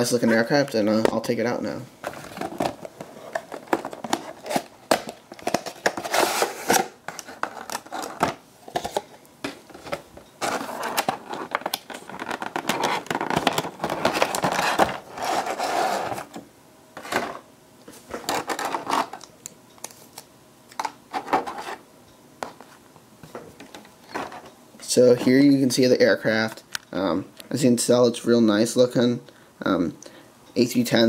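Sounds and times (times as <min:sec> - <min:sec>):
plastic packaging crinkling: 0:09.7 - 0:16.3.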